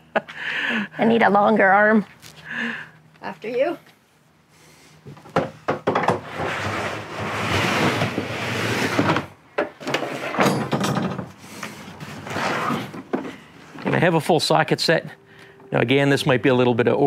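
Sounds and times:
plastic bin scraping: 6.2 - 9.3, 12.0 - 13.2.

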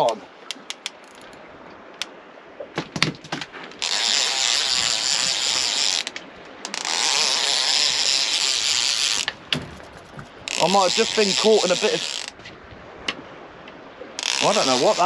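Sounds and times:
fishing reel clicks: 0.4 - 1.4, 3.8 - 9.4, 10.5 - 12.4, 14.2 - 15.0
fishing reel drag screaming: 3.8 - 9.3, 10.5 - 12.4, 14.2 - 15.0.

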